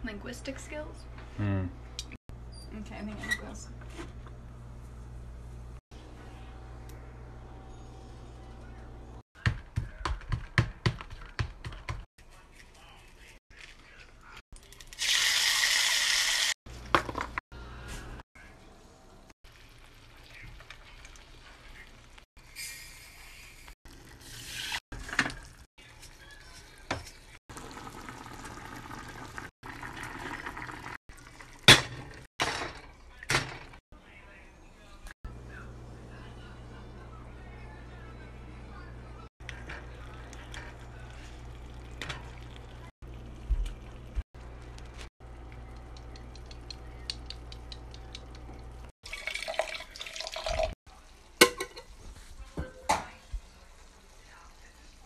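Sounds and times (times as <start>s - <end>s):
water poured into saucepan: 27.6s - 31.7s, 49.0s - 50.8s
pan crackling: 39.4s - 48.9s
cookware knocks and clinks: 51.4s - 51.9s.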